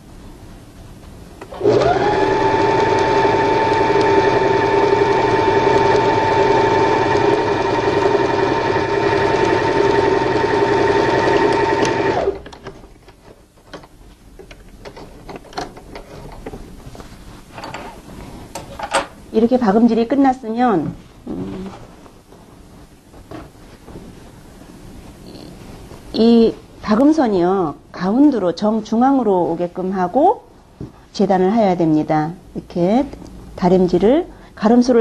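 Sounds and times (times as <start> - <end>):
sewing machine stitching: 1.5 - 12.5.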